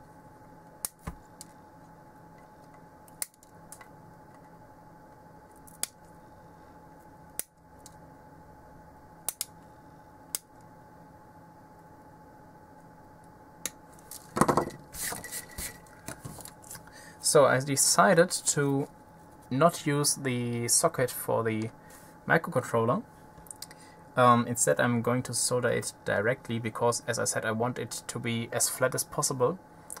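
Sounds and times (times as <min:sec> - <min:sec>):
extractor fan hum: 0:00.0 - 0:30.0
tools and board rustling: 0:14.1 - 0:16.5.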